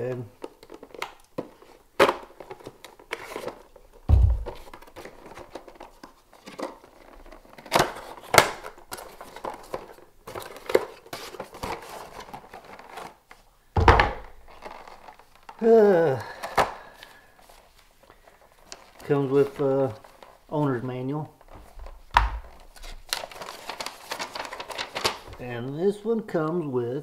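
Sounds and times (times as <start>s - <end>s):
cardboard and plastic packaging crinkling: 0.0s - 25.9s
dull thump: 4.1s - 4.6s, 13.8s - 14.3s.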